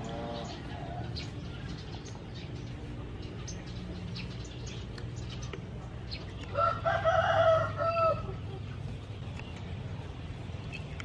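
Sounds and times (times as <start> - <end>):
rooster crowing: 6.5 - 8.4.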